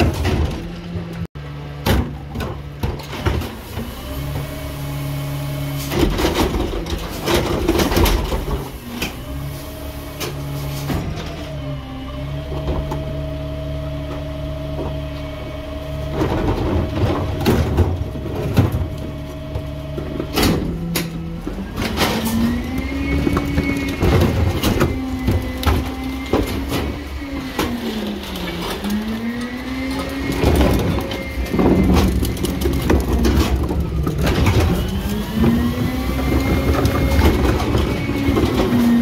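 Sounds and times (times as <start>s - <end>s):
rubbish clattering: 0.0s - 4.6s, 5.6s - 11.6s, 12.3s - 39.0s
garbage truck engine: 0.0s - 39.0s
carts knocking against hopper: 29.9s - 39.0s.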